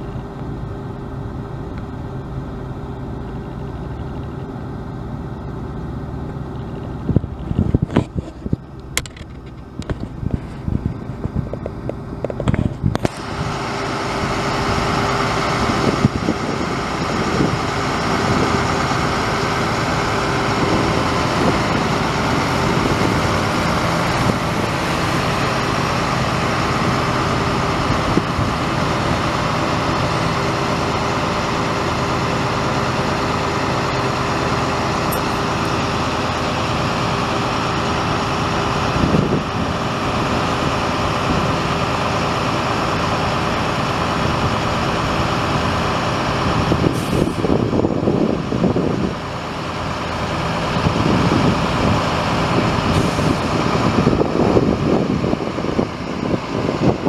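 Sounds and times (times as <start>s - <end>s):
diesel truck engine droning: 0.0s - 57.0s.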